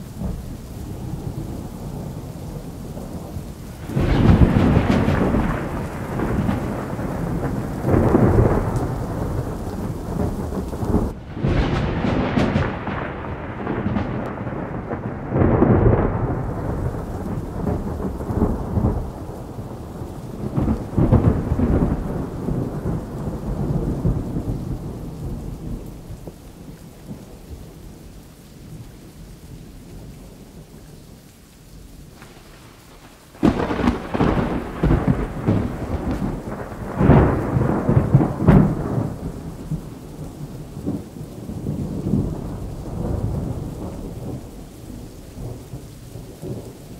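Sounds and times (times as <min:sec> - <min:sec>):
thunder rumbling: 0:00.0 - 0:28.1, 0:32.0 - 0:46.9
loud thunderclap: 0:03.1 - 0:26.1, 0:32.1 - 0:46.7.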